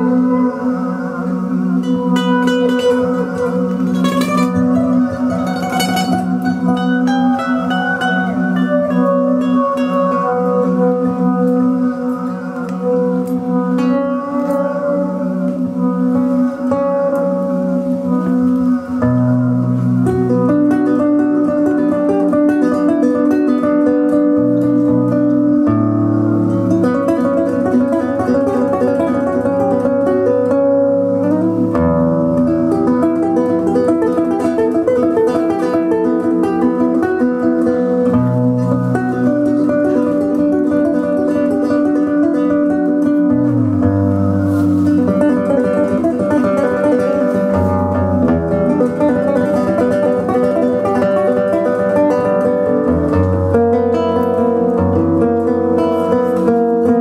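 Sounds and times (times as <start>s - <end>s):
classical guitar fingerstyle: 0.0s - 57.0s.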